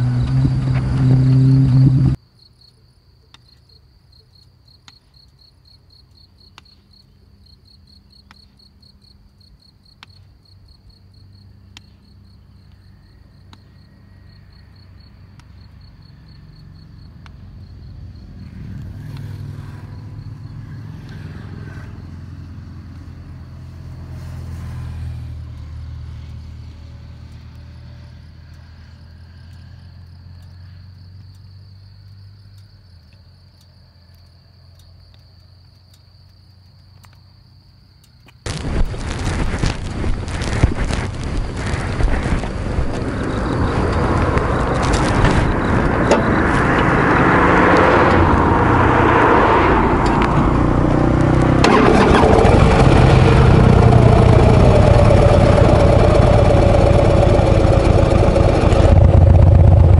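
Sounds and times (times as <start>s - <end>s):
vehicle engine rumble: 0.0s - 2.2s, 6.8s - 59.9s
crickets chirring: 0.0s - 53.4s
faint clicks: 30.3s - 37.3s.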